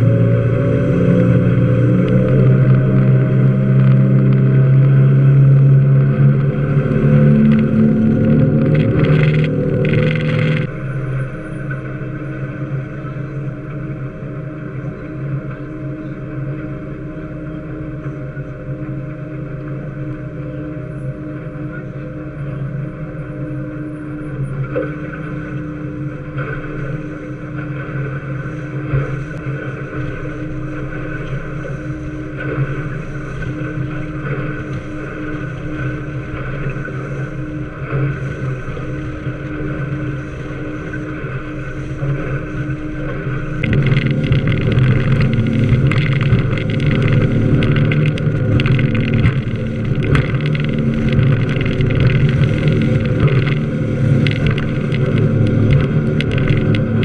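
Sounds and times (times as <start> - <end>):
boat engines running: 0.0 - 57.0
water splashing: 0.0 - 57.0
wind: 0.0 - 57.0.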